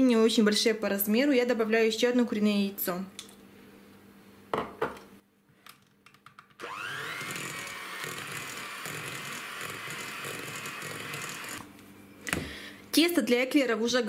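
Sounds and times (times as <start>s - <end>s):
electric hand mixer whining: 6.6s - 11.7s.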